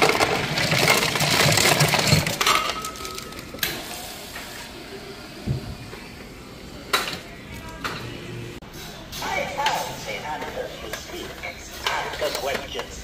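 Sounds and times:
ice cubes clattering into cup: 0:00.0 - 0:03.6.

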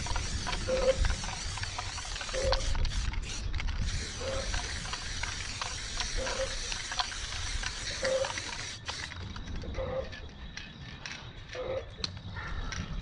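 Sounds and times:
spray can hissing: 0:00.0 - 0:09.2
spray can rattling: 0:00.0 - 0:09.6.

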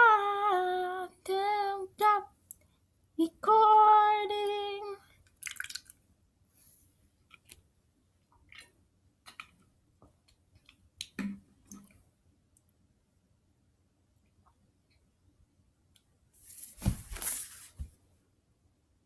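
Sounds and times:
plastic bottle rustling: 0:16.5 - 0:17.9.

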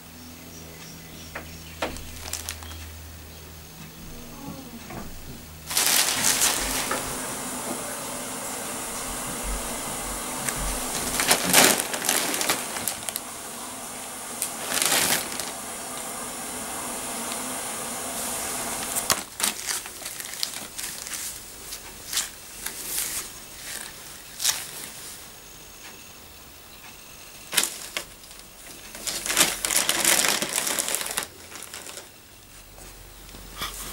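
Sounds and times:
steady hiss: 0:00.0 - 0:33.9
plastic packet crinkling: 0:01.9 - 0:02.8, 0:05.6 - 0:07.2, 0:10.4 - 0:13.3, 0:14.4 - 0:16.1, 0:18.8 - 0:25.0, 0:27.5 - 0:32.2.

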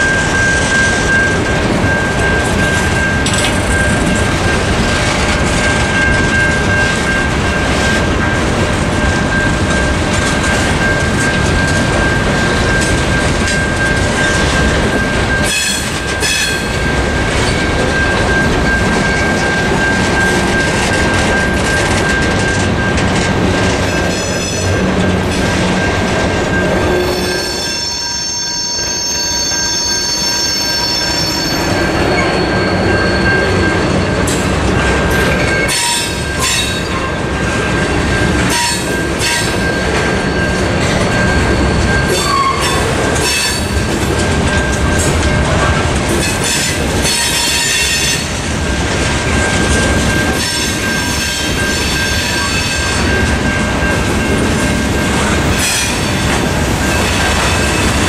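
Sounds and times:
train wheels rumbling on rails: 0:00.0 - 0:58.0
high steady squeal: 0:23.9 - 0:34.2
sharp wheel squeals: 0:26.8 - 0:33.8, 0:46.2 - 0:48.3.

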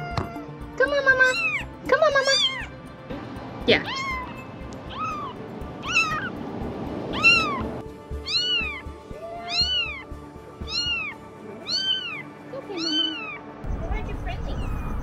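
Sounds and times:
kitten mewing: 0:03.7 - 0:06.3, 0:07.1 - 0:13.4.

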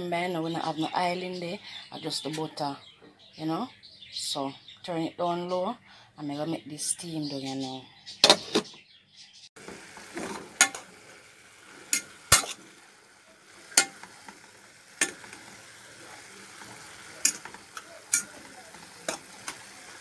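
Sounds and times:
faint sizzle from pot: 0:09.6 - 0:20.0
metal clinking against pot: 0:13.8 - 0:14.1, 0:17.2 - 0:18.5.

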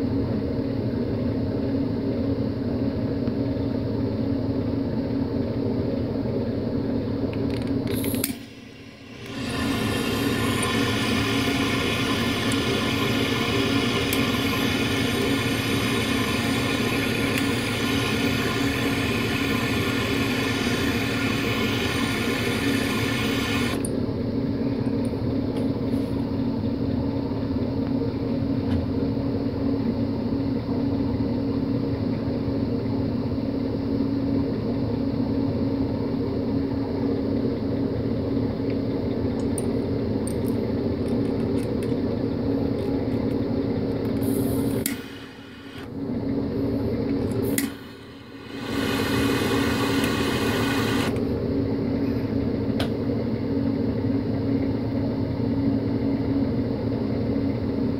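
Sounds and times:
low mechanical hum: 0:00.0 - 0:57.9
torch flame hissing: 0:07.9 - 0:23.9, 0:44.2 - 0:45.9, 0:47.3 - 0:51.2.

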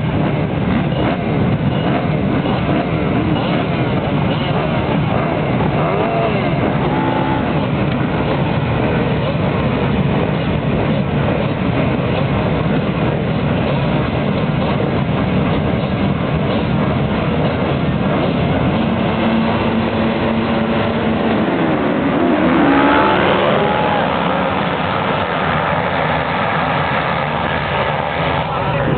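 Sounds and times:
motocross bikes revving: 0:00.2 - 0:08.6, 0:17.9 - 0:28.9
motorbikes accelerating away: 0:00.2 - 0:08.6, 0:17.6 - 0:28.9.

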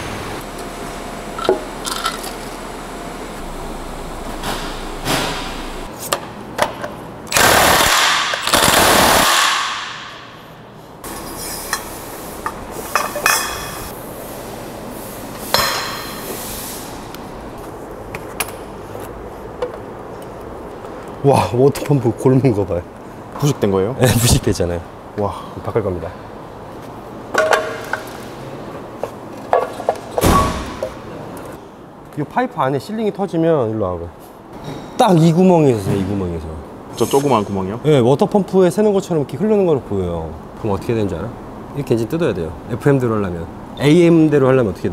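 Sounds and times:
impact wrench hammering: 0:15.5 - 0:16.2.

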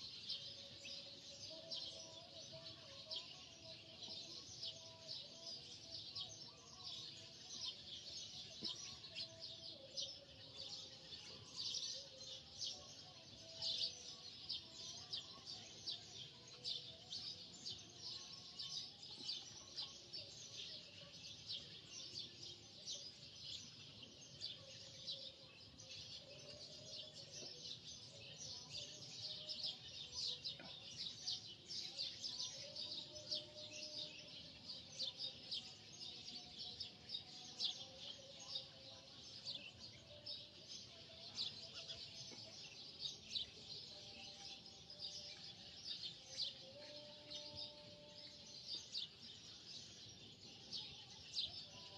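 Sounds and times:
small birds chirping: 0:00.0 - 0:51.9.

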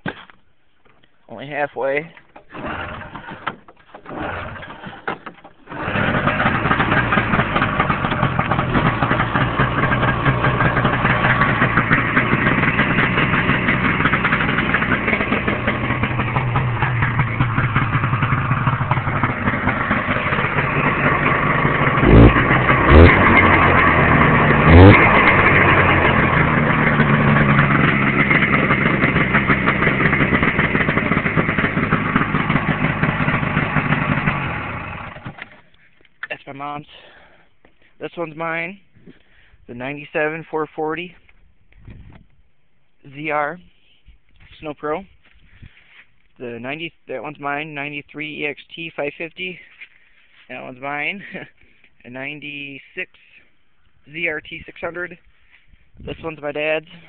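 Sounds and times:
snowmobile engine cranking: 0:02.2 - 0:36.0
engine throttle blips: 0:02.3 - 0:36.4
snowmobile engine idling: 0:04.0 - 0:36.1, 0:49.2 - 0:53.4.

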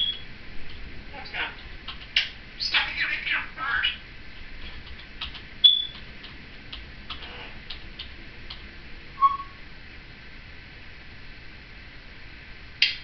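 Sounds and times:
parrot whistling: 0:00.0 - 0:00.2, 0:05.6 - 0:06.0, 0:09.2 - 0:09.6.

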